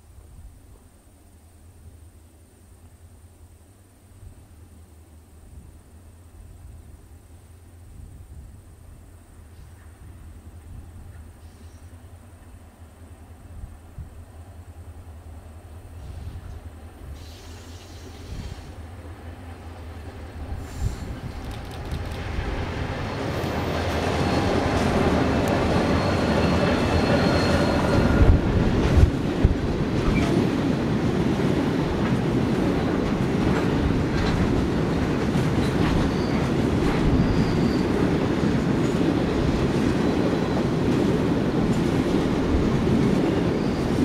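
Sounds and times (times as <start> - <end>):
train wheels clattering on rails: 16.0 - 44.0
high wheel squeal: 23.0 - 28.4, 36.0 - 38.0, 43.5 - 44.0.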